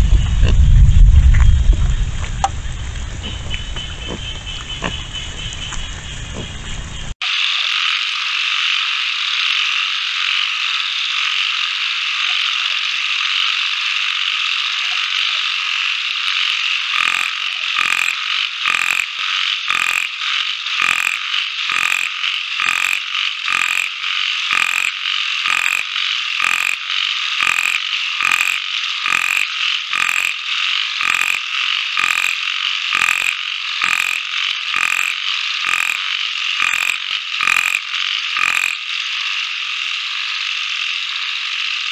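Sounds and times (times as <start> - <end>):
regular pulsing call: 16.9 - 20.1, 20.7 - 38.9
chorus of wildlife calls: 26.4 - 39.0.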